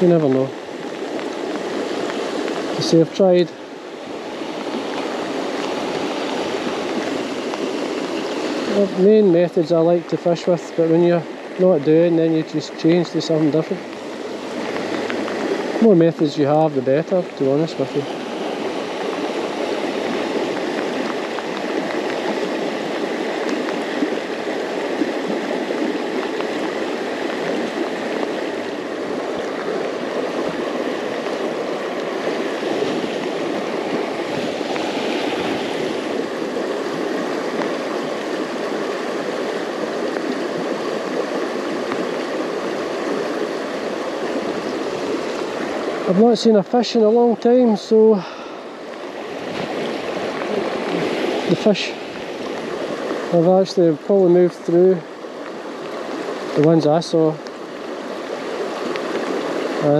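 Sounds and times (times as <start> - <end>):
river water rushing over rocks: 0.0 - 59.9.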